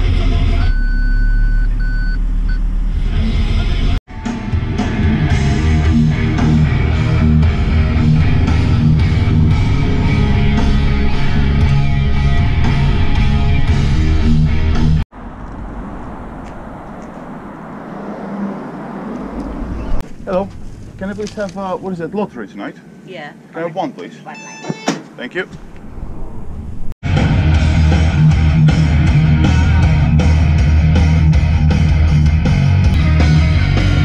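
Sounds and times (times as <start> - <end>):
parking sensor beeps: 0.6 - 2.7, 24.3 - 25.0
rock music with electric guitar: 3.7 - 15.0, 27.0 - 34.0
street traffic noise: 4.6 - 27.0.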